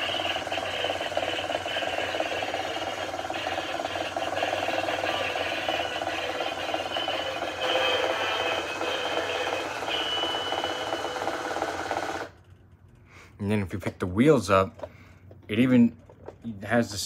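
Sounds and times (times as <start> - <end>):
tinny toy speaker song: 0.0 - 11.6.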